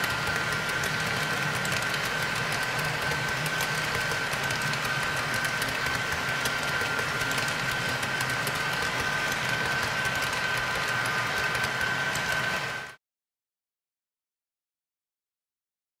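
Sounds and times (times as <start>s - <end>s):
model train rolling rumble: 0.0s - 12.9s
wheel clicks over rails: 0.0s - 12.9s.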